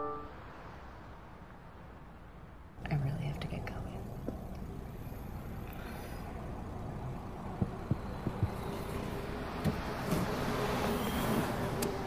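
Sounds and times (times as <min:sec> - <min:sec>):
car cabin rumble: 0:02.8 - 0:10.4
soft low thumps: 0:07.0 - 0:08.8.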